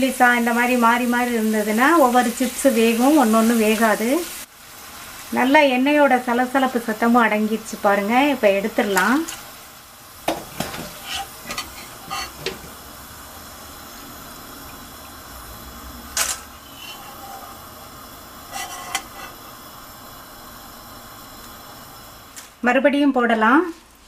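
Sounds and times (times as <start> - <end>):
chips sizzling in oil: 0.0 - 24.0
skimmer scraping metal pan: 10.6 - 12.8, 16.4 - 17.6, 18.5 - 19.4.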